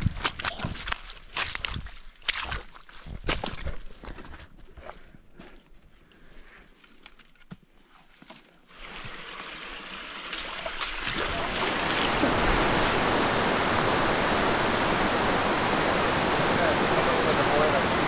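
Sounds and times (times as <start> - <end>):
footsteps on trail: 0.0 - 9.2
river rapids rushing: 11.2 - 18.0.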